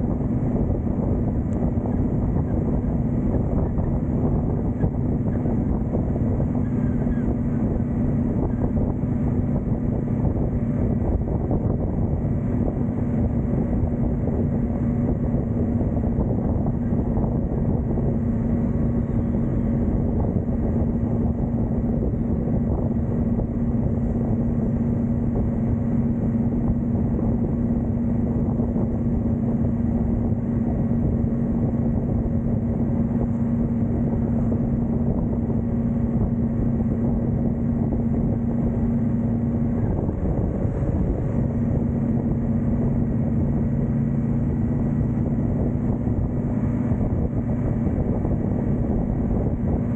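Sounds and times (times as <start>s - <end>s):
motorcycle engine cruising: 0.0s - 49.9s
wind rushing over microphone: 0.0s - 49.9s.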